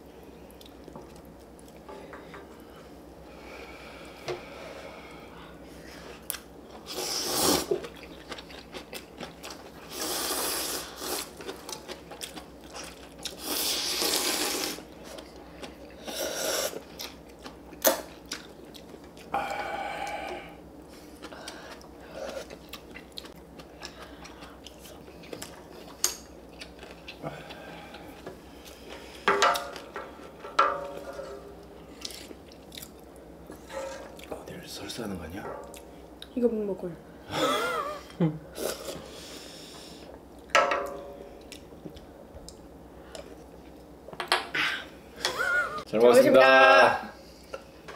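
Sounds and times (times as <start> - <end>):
chewing: 7.7 - 10.0, 11.0 - 13.4, 16.7 - 19.3, 21.0 - 29.0.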